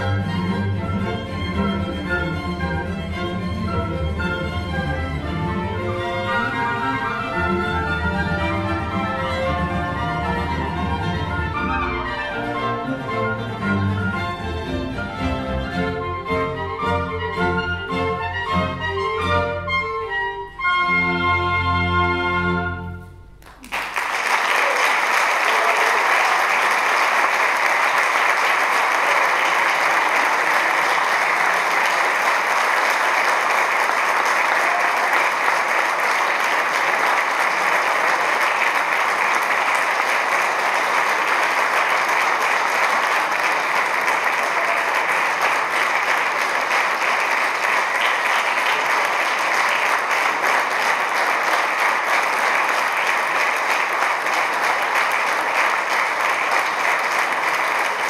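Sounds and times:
audience applause: 0:00.0 - 0:02.9, 0:23.4 - 0:58.0.

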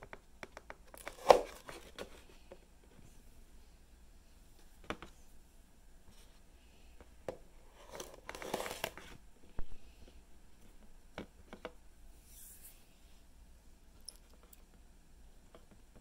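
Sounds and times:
paper plate rustling: 0:07.7 - 0:09.2.

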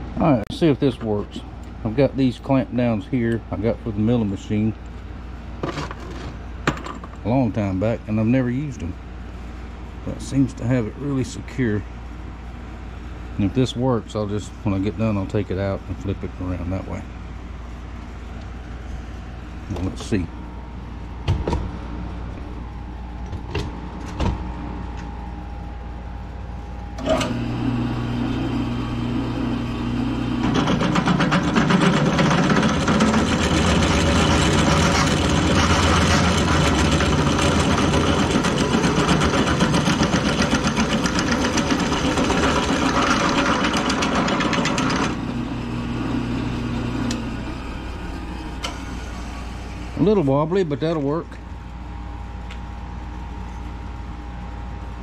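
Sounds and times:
drill press motor humming: 0:26.8 - 0:50.2
drill bit cutting aluminum tube: 0:29.9 - 0:45.3.

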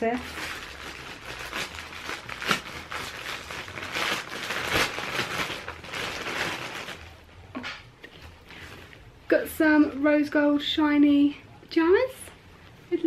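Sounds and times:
paper crinkling and tearing: 0:00.0 - 0:07.2.

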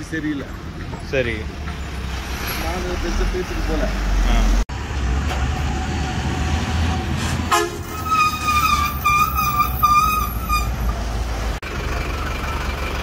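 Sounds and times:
truck engine rumbling: 0:00.0 - 0:13.0
loud truck horn honks: 0:07.5 - 0:10.9.

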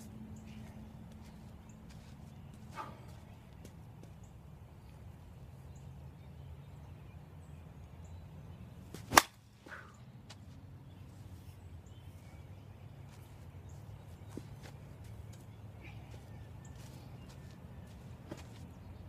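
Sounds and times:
bat striking softball: 0:09.0 - 0:09.9.

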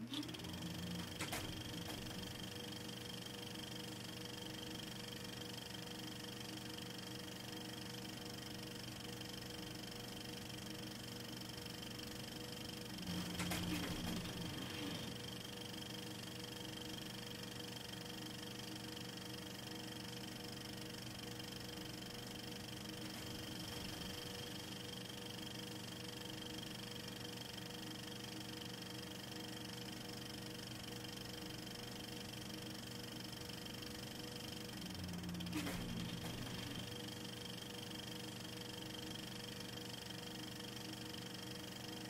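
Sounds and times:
faint whining tones: 0:12.9 - 0:15.8.

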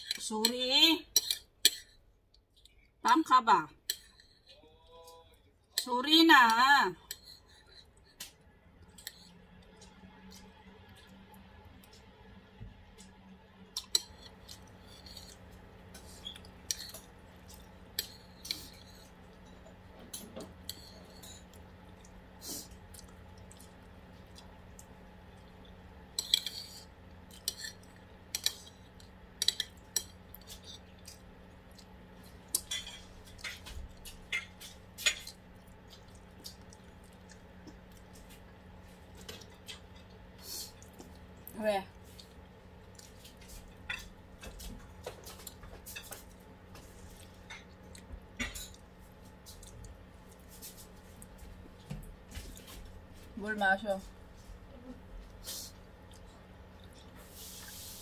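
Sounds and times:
steady low hum: 0:00.0 - 0:58.0
cutlery clinking on dishes: 0:32.6 - 0:35.4.

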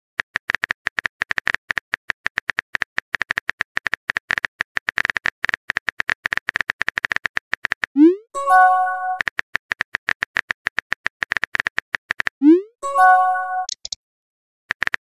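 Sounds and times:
phone keyboard typing taps: 0:13.6 - 0:14.0.

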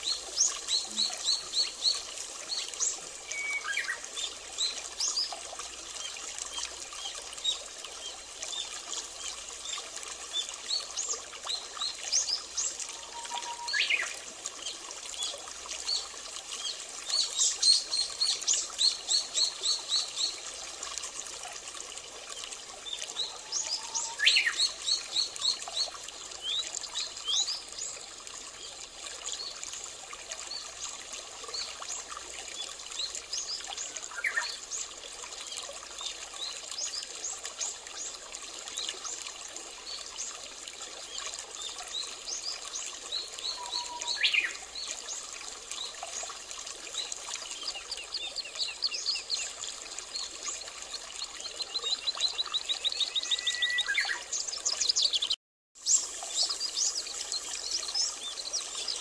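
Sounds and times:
trickle of running water: 0:00.0 - 0:59.0
small birds chirping: 0:47.0 - 0:59.0.

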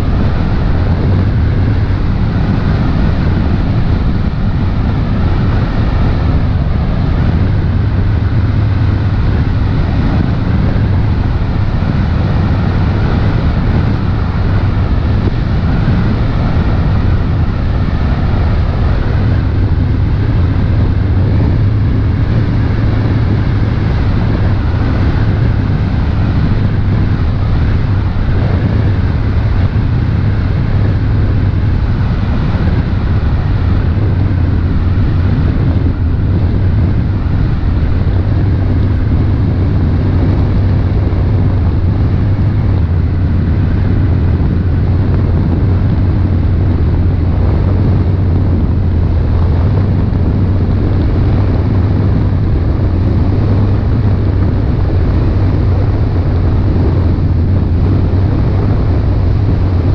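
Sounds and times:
boat engine droning: 0:00.0 - 0:59.9
wind and water rushing: 0:00.0 - 0:59.9.

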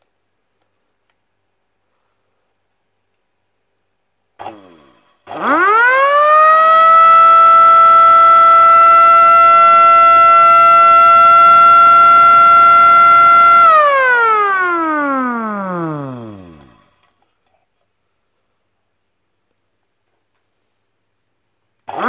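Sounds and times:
electric siren wailing: 0:05.3 - 0:16.8.

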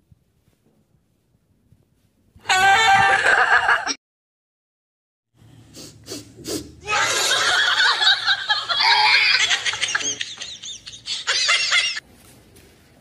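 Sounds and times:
people laughing: 0:02.8 - 0:04.0, 0:06.8 - 0:12.0.

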